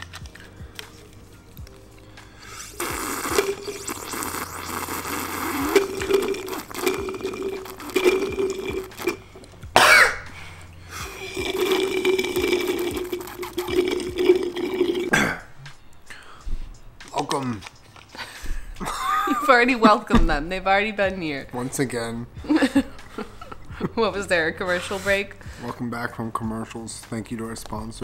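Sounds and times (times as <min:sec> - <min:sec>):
slurping through a straw: 0:02.4 - 0:09.5, 0:11.0 - 0:15.2.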